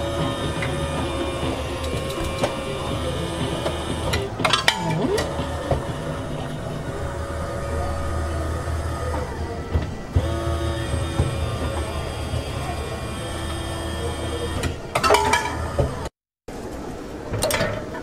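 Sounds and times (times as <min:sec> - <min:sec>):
sharp clicks and rattles: 0:00.0 - 0:07.5
vending machine motor running: 0:00.0 - 0:16.2.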